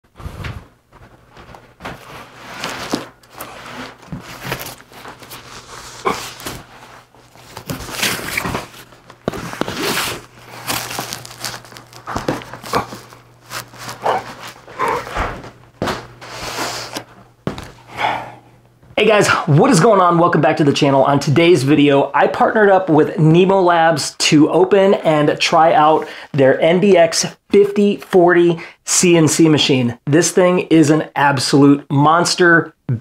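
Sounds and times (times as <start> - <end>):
cardboard scraping and rustling: 0.1 - 17.8
footsteps: 0.1 - 17.9.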